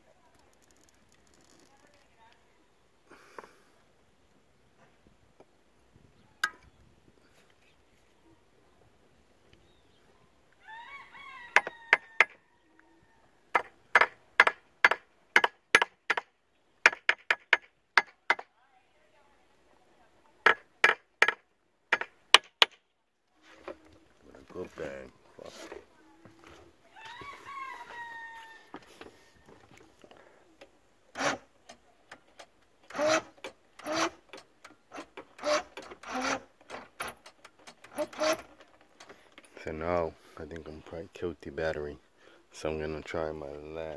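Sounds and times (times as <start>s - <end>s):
outboard engine electric starter: 31.1s - 31.5s, 32.3s - 39.2s.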